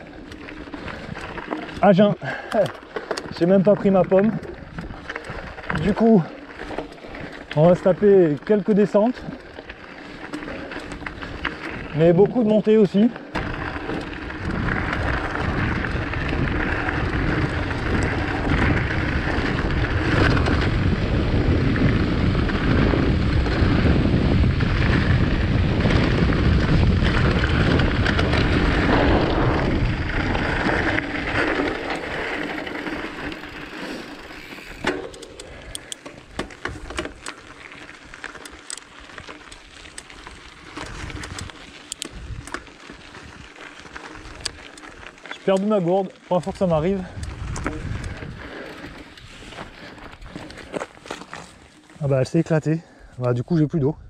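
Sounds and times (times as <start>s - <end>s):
bike rattling over stones: 0.0s - 54.0s
wind rush: 13.4s - 33.8s, 46.6s - 50.7s.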